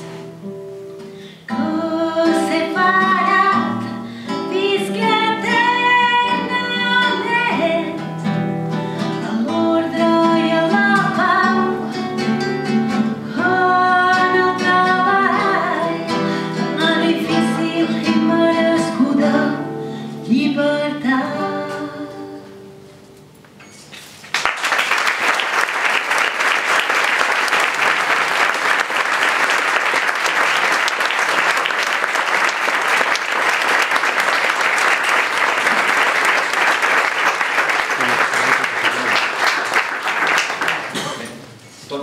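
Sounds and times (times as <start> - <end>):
acoustic guitars playing: 0.0 - 24.2
woman singing: 1.5 - 8.1, 9.2 - 22.7
audience applause: 24.2 - 41.0.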